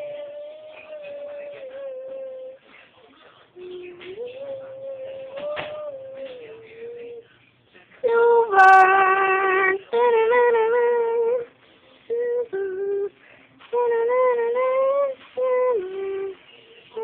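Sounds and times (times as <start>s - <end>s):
person singing slow tune: 0.0s - 2.6s, 3.6s - 7.2s, 8.0s - 11.5s, 12.1s - 17.0s.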